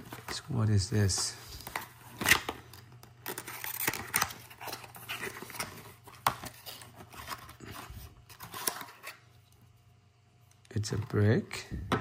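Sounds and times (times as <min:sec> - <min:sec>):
cardboard rustling and scraping: 0:03.3 - 0:09.2.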